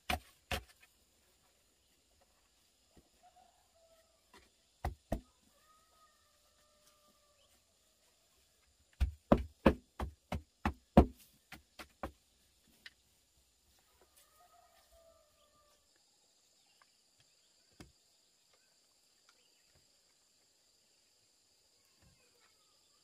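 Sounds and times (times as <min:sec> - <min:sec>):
wooden stick tamping soil: 0:00.0 - 0:03.1, 0:08.6 - 0:13.1.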